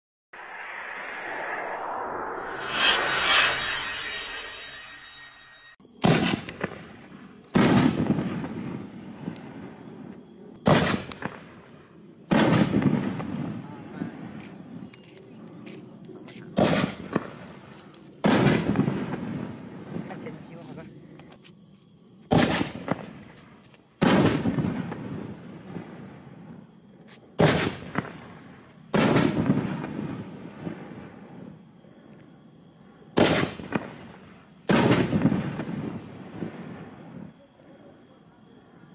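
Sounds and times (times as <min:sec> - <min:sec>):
firework shell bursting boom: 0:06.0 - 0:08.8.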